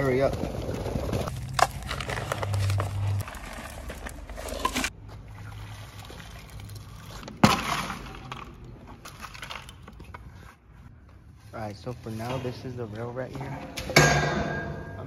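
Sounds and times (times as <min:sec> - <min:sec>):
hand scraping through concrete mix: 0:00.0 - 0:08.2.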